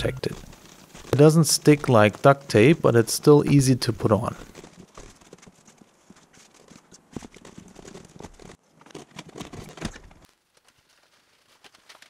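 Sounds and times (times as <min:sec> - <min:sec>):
small crackles: 0:00.0 - 0:12.0
plastic tape crinkling: 0:06.2 - 0:12.0.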